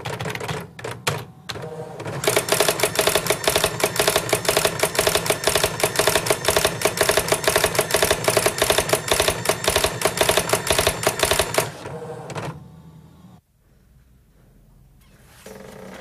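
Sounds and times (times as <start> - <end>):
steady machine hum: 0.8 - 14.9
fast mechanical clatter: 2.2 - 11.8.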